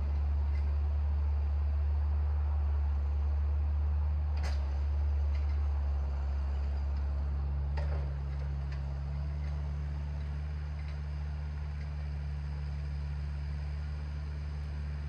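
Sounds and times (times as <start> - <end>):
low mechanical hum: 0.0 - 15.0.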